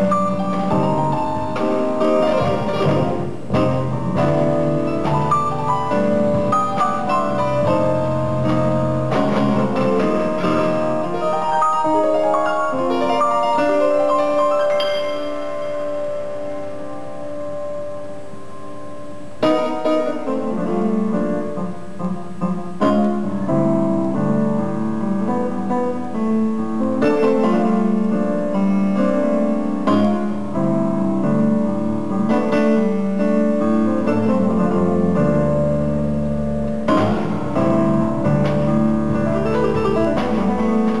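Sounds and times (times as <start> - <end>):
low bass notes: 0.0 - 11.6, 26.2 - 41.0
jazz piano chords: 0.0 - 41.0.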